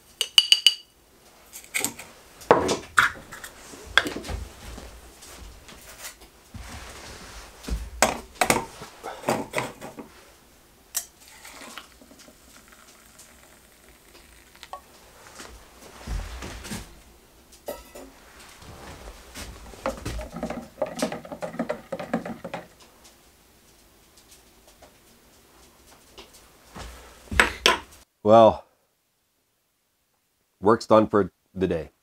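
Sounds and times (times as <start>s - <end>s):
metal spoon clinking in cup: 0.2s - 0.9s
liquid pouring: 11.0s - 15.5s.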